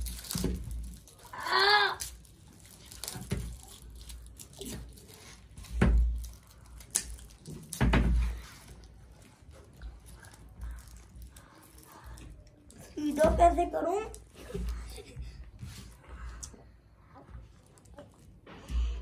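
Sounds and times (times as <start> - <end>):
child squealing: 1.4 - 2.0.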